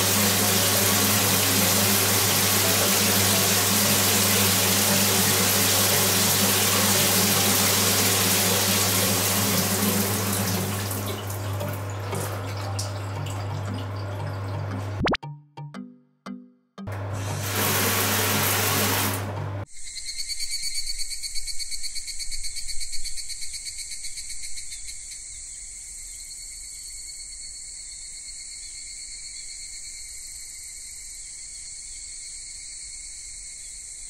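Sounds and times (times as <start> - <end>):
shower spraying water: 0.0 - 14.9, 17.0 - 19.6
insects chirring: 19.7 - 34.0.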